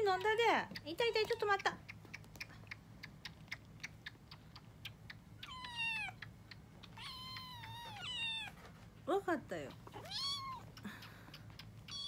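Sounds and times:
kitten suckling clicks: 0:00.0 - 0:07.8, 0:10.6 - 0:12.0
kittens meowing: 0:05.4 - 0:08.6, 0:09.9 - 0:12.0.

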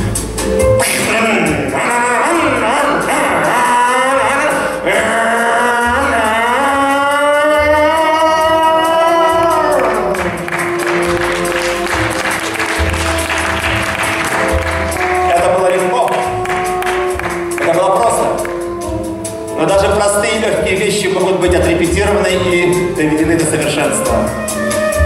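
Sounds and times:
stage music: 0:00.0 - 0:25.0
singer holding a long note: 0:01.0 - 0:10.3
audience applause: 0:09.8 - 0:17.8.

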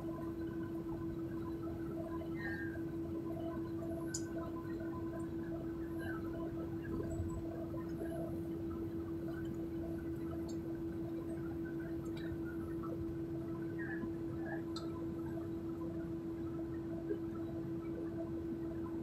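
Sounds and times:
faint ticks: 0:04.0 - 0:04.6, 0:13.9 - 0:15.0.

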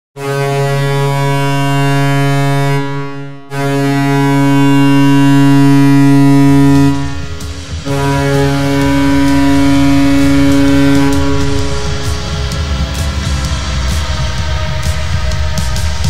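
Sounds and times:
deep horn blasts: 0:00.2 - 0:16.0
low rumble: 0:03.8 - 0:16.0.

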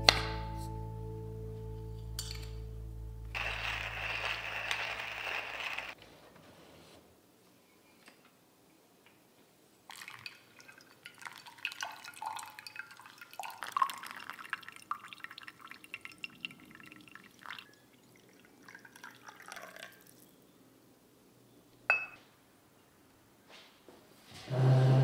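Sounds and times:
water pouring onto coffee grounds: 0:03.4 - 0:06.0, 0:09.9 - 0:20.2
coffee dripping into glass: 0:09.9 - 0:20.3
glass mug set down: 0:21.9 - 0:22.2.

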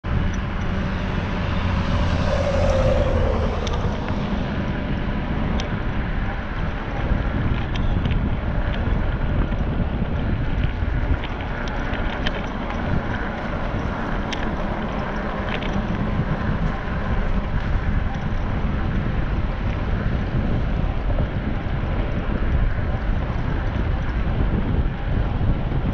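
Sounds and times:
low rumble: 0:00.0 - 0:07.0
wind buffeting microphone: 0:00.0 - 0:25.9.

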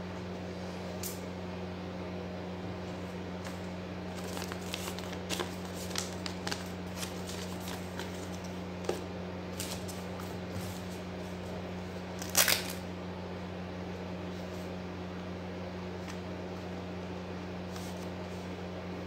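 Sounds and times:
paper rustling and crinkling: 0:03.4 - 0:11.0.

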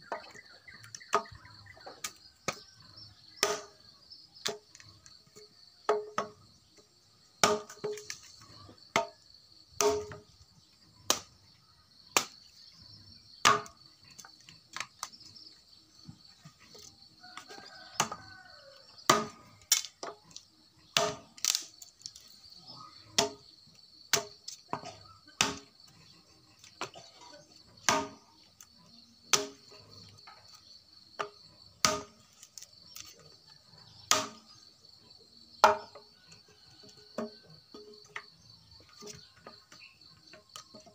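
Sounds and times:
insects trilling: 0:00.0 - 0:40.9
machete chopping branches: 0:09.8 - 0:10.2, 0:21.0 - 0:22.1, 0:27.8 - 0:28.2, 0:29.3 - 0:29.6, 0:31.2 - 0:33.1, 0:34.1 - 0:34.4.

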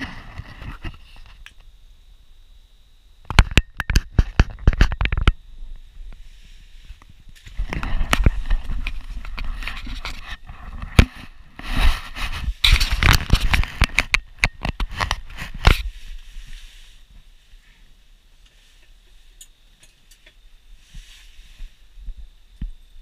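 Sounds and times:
camera handling rustles and knocks: 0:03.3 - 0:05.4, 0:07.4 - 0:15.9.

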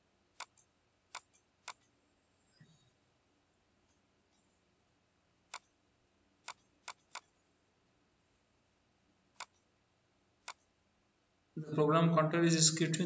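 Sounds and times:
computer mouse button clicking: 0:00.4 - 0:01.9, 0:06.4 - 0:07.3, 0:09.4 - 0:09.6.

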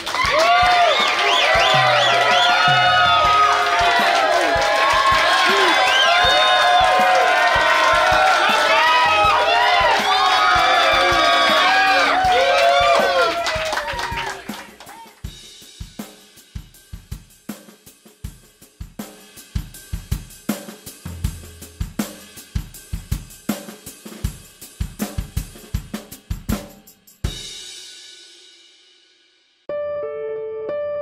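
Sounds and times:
drum kit beat: 0:00.0 - 0:28.6
background music: 0:01.4 - 0:14.8.

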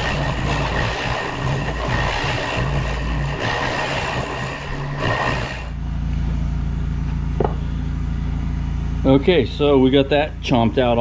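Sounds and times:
milling cutter cutting metal: 0:00.0 - 0:05.8
machine motor hum: 0:00.0 - 0:11.0.

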